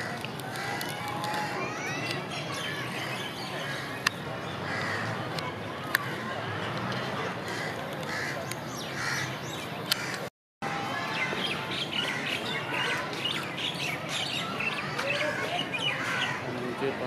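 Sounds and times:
birds chirping: 1.7 - 5.4, 7.4 - 10.3, 11.0 - 16.8.

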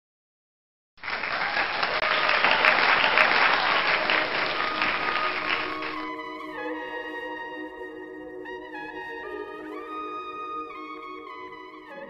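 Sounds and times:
large crowd applauding: 1.0 - 6.7.

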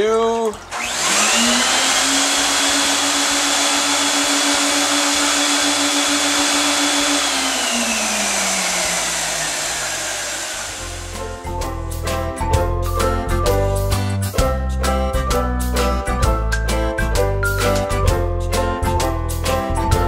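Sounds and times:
suction motor hiss and whine: 0.8 - 11.6.

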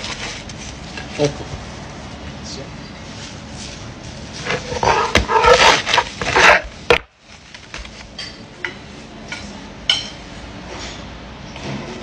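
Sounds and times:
bread crust crunching under knife: 4.4 - 6.7.

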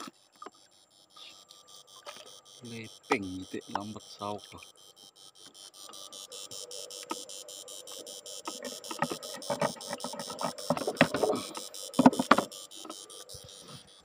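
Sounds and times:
electrical inverter buzzing: 0.0 - 14.0
wooden knocks and clatter: 12.0 - 12.5.

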